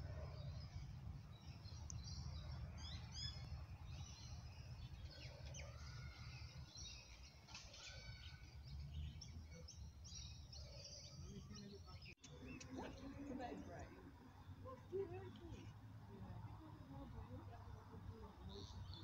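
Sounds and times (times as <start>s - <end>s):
birds chirping: 0.0s - 19.0s.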